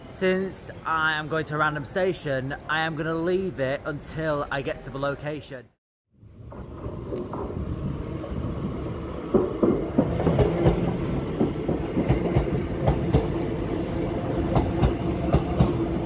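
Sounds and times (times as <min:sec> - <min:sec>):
train rumble: 0:06.2 - 0:16.0
train wheels clicking over joints: 0:09.2 - 0:13.5, 0:14.4 - 0:16.0.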